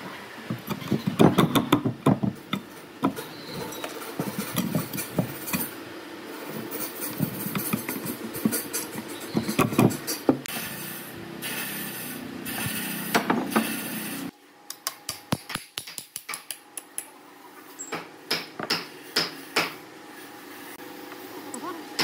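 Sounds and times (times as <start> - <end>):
steady low hum: 0.0 - 22.0
metal grating and clicking: 2.4 - 5.8.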